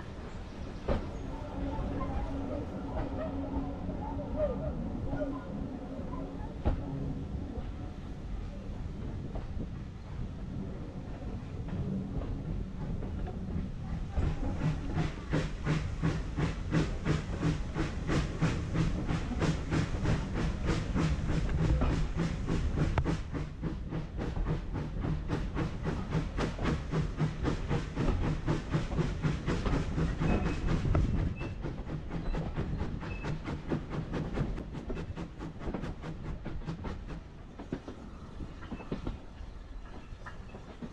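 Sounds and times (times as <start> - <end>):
steam locomotive chuffing: 11.7 - 40.9
steam hissing: 14.0 - 37.4.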